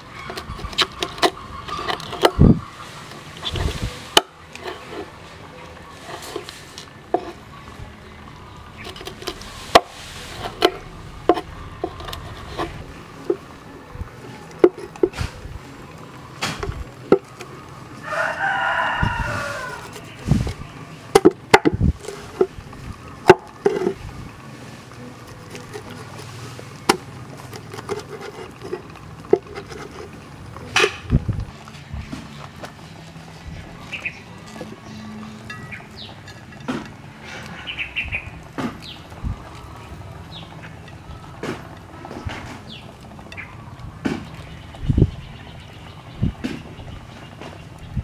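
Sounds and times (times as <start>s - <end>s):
rooster crowing: 17.9s - 20.2s.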